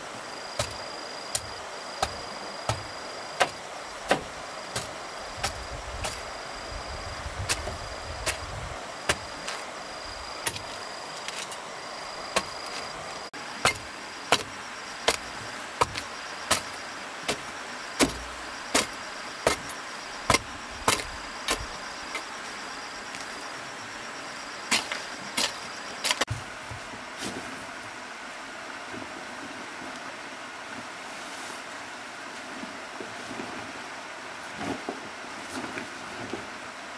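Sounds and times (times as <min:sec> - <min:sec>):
sharp knocks: 0:17.3 - 0:19.7.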